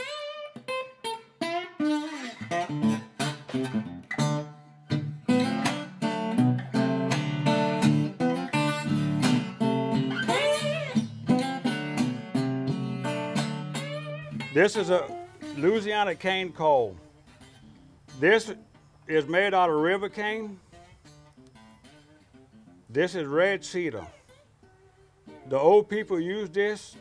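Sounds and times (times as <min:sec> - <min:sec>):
plucked guitar music: 0:00.0 - 0:27.0.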